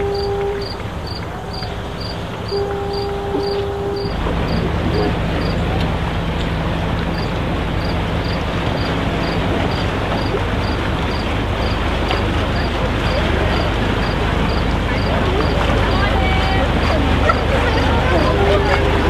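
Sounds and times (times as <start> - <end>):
two-note horn tone: 0.0 - 0.9, 2.5 - 5.1
boat engine humming: 0.0 - 19.0.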